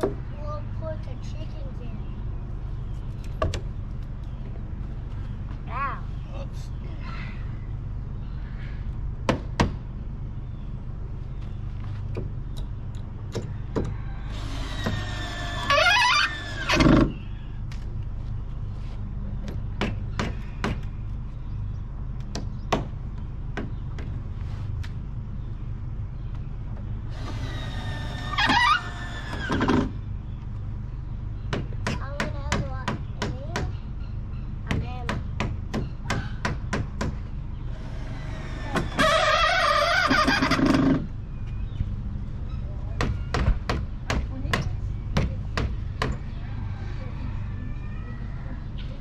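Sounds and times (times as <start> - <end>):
steady low hum: 0.0 - 49.0.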